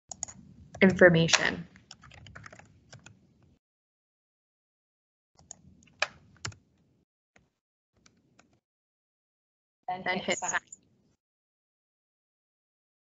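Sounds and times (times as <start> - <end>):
computer keyboard typing: 0.1 - 3.2, 5.4 - 6.6.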